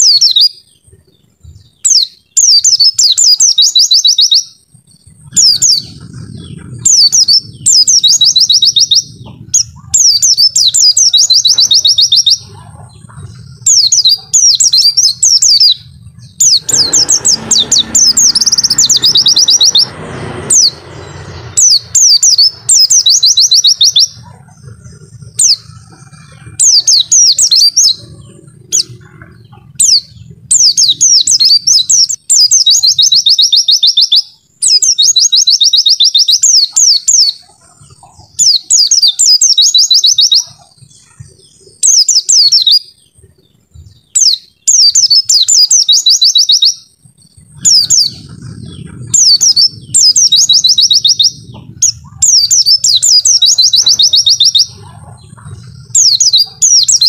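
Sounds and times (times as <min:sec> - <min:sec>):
bird twittering trills: 0:00.0 - 0:57.0
low hum: 0:04.5 - 0:33.2, 0:46.8 - 0:57.0.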